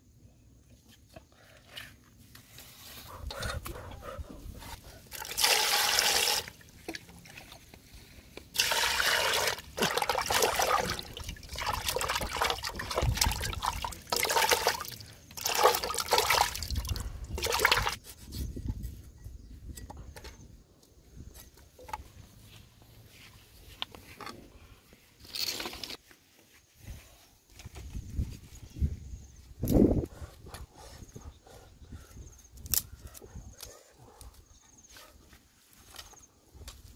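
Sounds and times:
water splashing in metal pot: 8.6 - 18.0.

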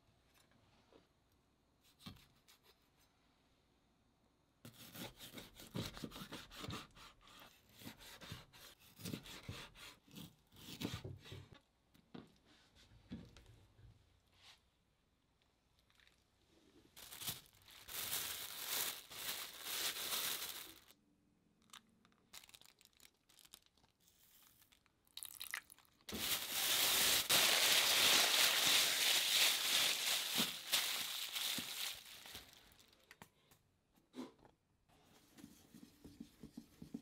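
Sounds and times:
plastic bag crinkling: 16.9 - 21.0, 21.6 - 33.1.

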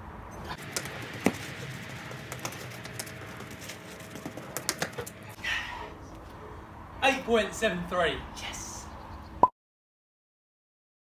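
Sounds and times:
running footsteps on paving: 0.6 - 5.4.

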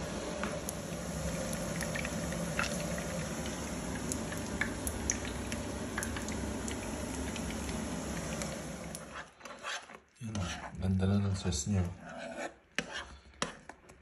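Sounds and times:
meat sizzling in oil: 0.0 - 9.3
oil popping and crackling: 0.5 - 9.1.

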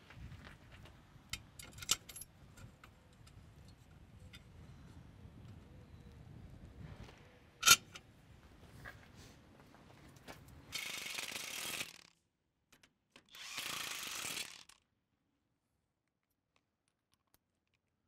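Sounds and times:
cordless impact driver running: 10.8 - 12.0, 13.3 - 14.8.

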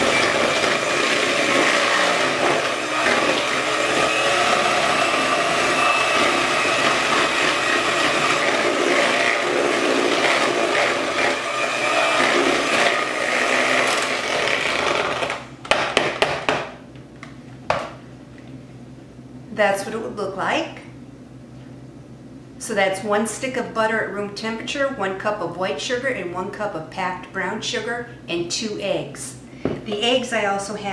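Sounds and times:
electric hand mixer running: 0.0 - 15.4.

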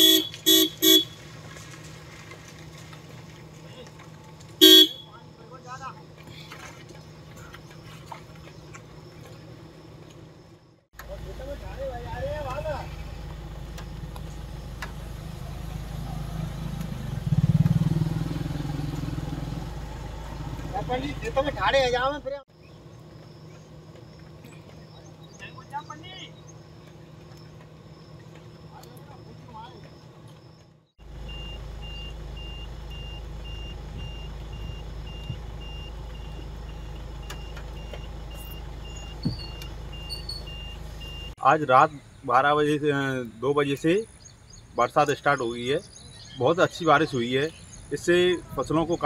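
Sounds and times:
vehicle engine running: 0.0 - 41.4.

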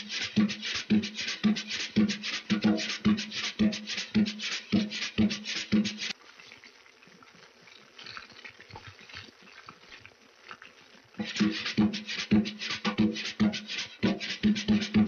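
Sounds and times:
percussion-driven music: 0.0 - 6.1, 11.2 - 15.0.

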